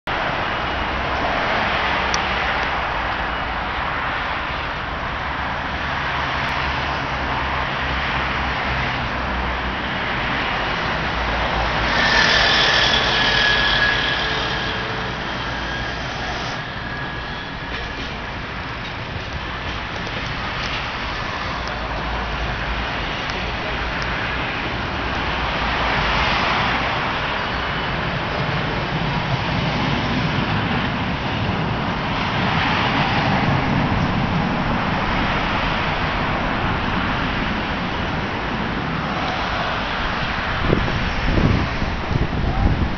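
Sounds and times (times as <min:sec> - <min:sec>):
road traffic passing: 0:00.1 - 0:42.9
tram rumbling past: 0:00.1 - 0:42.9
high squeal: 0:10.7 - 0:19.6.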